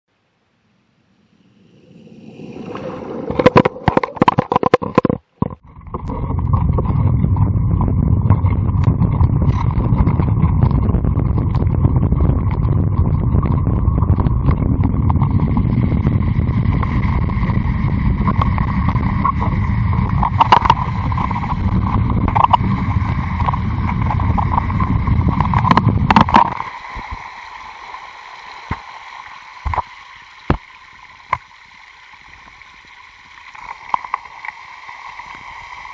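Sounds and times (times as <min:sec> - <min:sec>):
bike riding rumble: 0:01.4 - 0:27.3.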